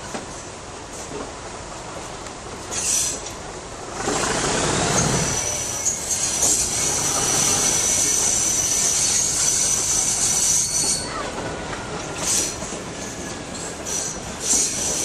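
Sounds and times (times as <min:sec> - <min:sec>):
train rumbling: 0:00.0 - 0:15.0
train wheels squealing: 0:02.7 - 0:03.3, 0:04.5 - 0:15.0.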